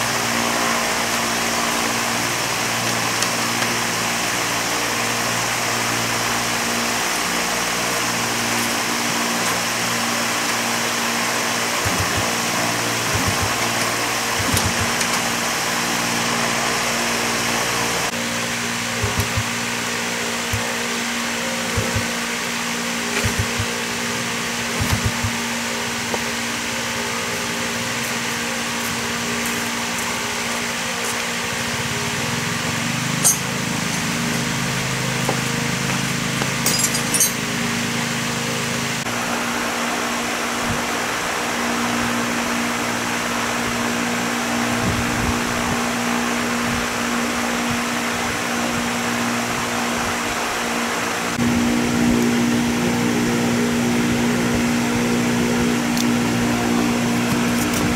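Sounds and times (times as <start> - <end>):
motorbike engine idling: 18.9 - 19.7, 21.5 - 22.3, 23.1 - 23.8, 24.8 - 25.5.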